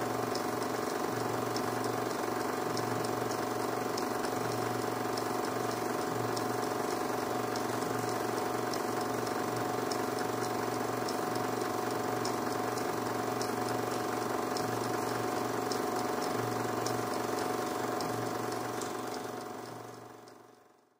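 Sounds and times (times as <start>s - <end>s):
film projector whirring: 0.0s - 20.9s
faint regular ticking: 0.1s - 20.6s.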